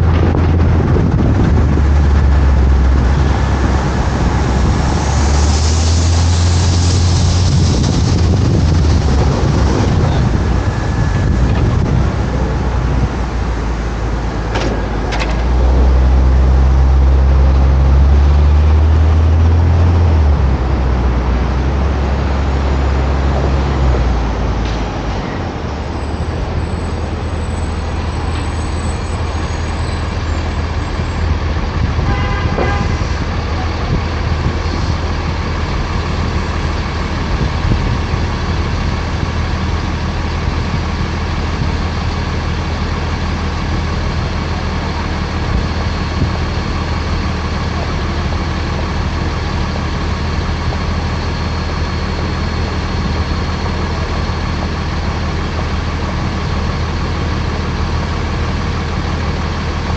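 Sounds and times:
car driving in traffic: 0.0s - 59.9s
car horn toot: 32.0s - 33.2s.

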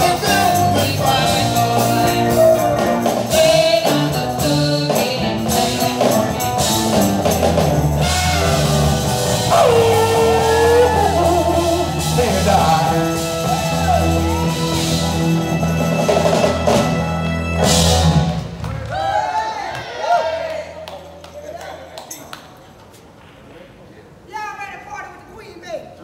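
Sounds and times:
person singing: 0.0s - 6.8s, 9.4s - 14.4s
maraca shaking: 0.0s - 16.6s
keyboard: 0.0s - 18.9s
drum kit: 0.0s - 19.1s.

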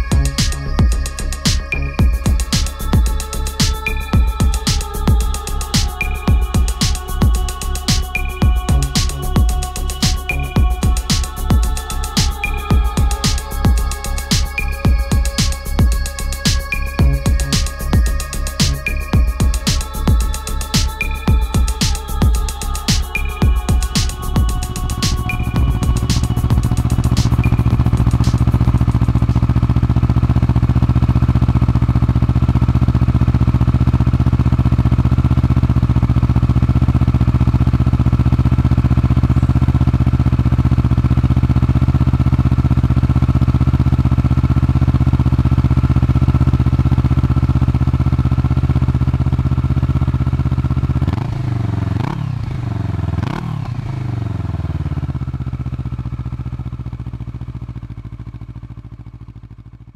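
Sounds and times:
motorcycle engine idling: 0.0s - 59.9s
motorcycle throttle blips: 24.8s - 41.2s.

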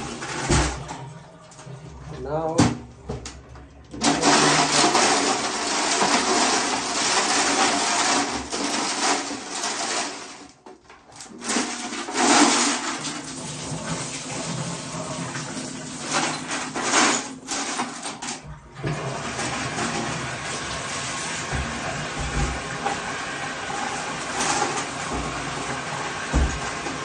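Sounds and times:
water running and splashing: 12.2s - 16.9s, 18.9s - 27.0s.

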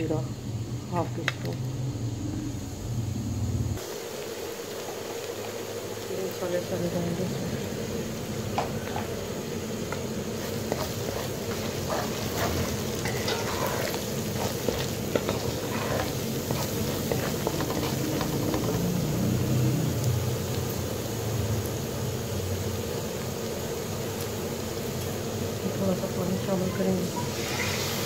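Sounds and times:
food sizzling in hot oil: 0.0s - 28.0s
spoon scraping metal pot: 10.4s - 18.8s.

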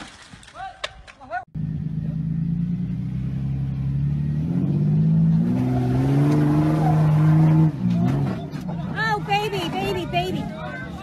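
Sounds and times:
engine revving under load: 1.6s - 10.6s.

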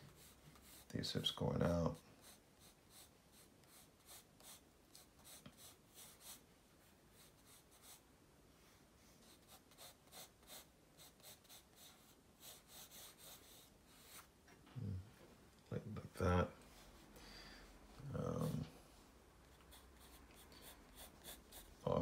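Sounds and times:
pencil scratching on paper: 0.0s - 1.0s, 1.9s - 6.4s, 7.1s - 8.0s, 9.1s - 14.3s, 19.5s - 22.0s.

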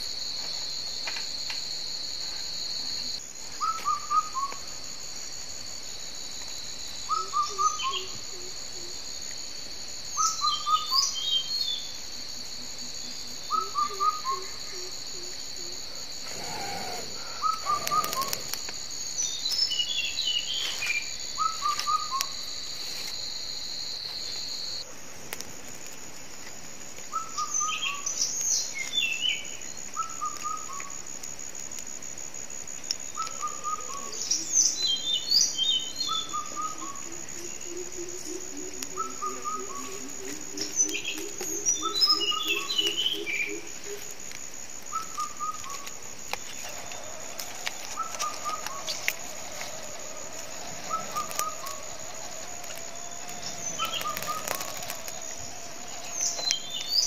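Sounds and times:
high-pitched insect drone: 0.0s - 24.9s, 27.1s - 57.0s
birds chirping: 15.7s - 22.2s, 45.0s - 57.0s
bird descending notes: 46.4s - 57.0s.

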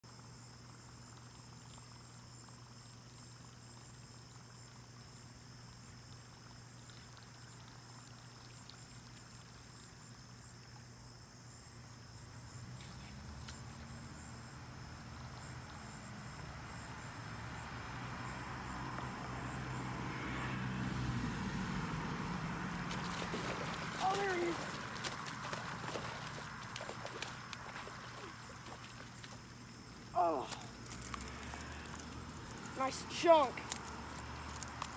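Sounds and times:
insects trilling: 0.1s - 21.4s, 22.1s - 34.9s
fish splashing at the surface: 22.8s - 34.9s.

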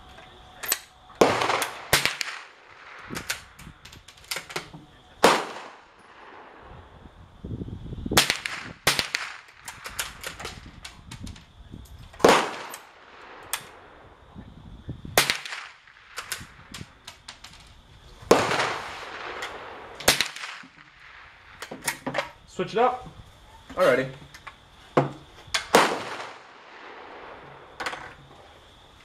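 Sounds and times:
gunshot echo: 1.2s - 3.3s, 5.2s - 6.6s, 12.2s - 13.8s, 18.3s - 21.1s, 25.7s - 27.8s
rifle gunshots: 1.2s - 3.6s, 5.2s - 6.6s, 8.2s - 10.7s, 12.2s - 14.0s, 15.2s - 16.7s, 18.3s - 21.6s, 25.7s - 27.7s.

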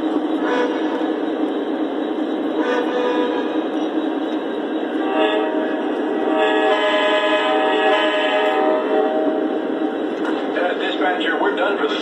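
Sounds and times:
model train rolling on track: 0.0s - 12.0s.

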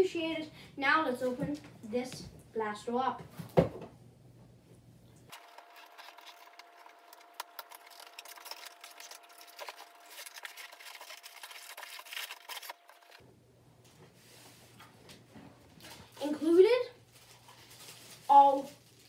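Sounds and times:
cardboard and paper rustling: 5.3s - 13.2s, 15.8s - 19.0s.

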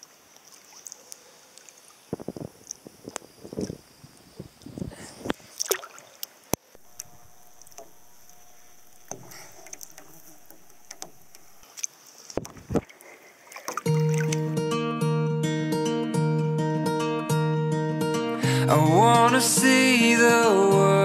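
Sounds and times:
lake water splashing: 0.0s - 14.6s
steady water wash: 4.6s - 14.4s.

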